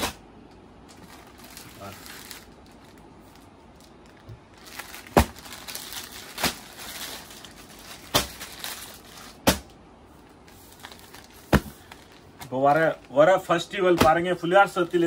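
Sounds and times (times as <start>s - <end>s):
plastic packaging crinkling: 0.8s - 9.4s, 10.5s - 13.2s, 14.2s - 15.0s
sharp slaps: 9.4s - 9.8s.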